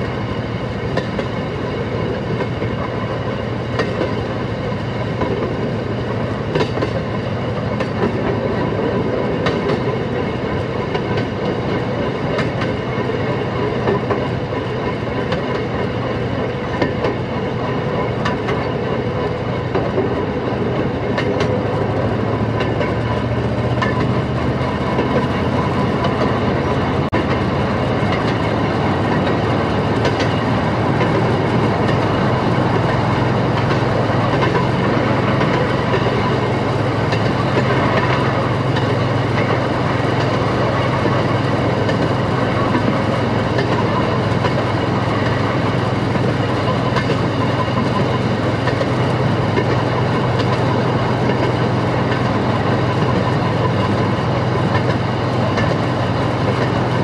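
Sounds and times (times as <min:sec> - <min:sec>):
wheels clicking over rail joints: 0:00.0 - 0:57.0.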